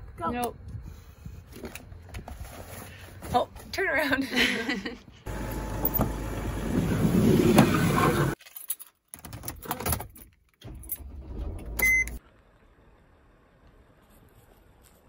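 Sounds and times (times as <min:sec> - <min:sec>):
sliding van door opening: 0:05.3 - 0:08.4, 0:10.6 - 0:12.2
keys rattling in ignition: 0:08.4 - 0:11.6
short beep: 0:11.8 - 0:12.2.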